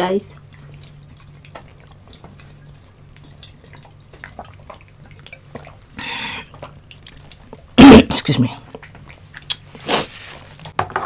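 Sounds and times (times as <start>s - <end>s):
low steady hum: 0.0s - 11.0s
faint swallowing: 0.4s - 10.6s
mouth clicks: 8.8s - 9.7s.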